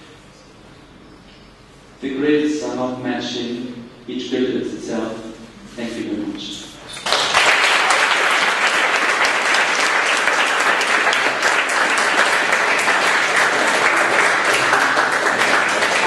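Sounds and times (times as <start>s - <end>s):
audience applauding: 7.0s - 16.0s.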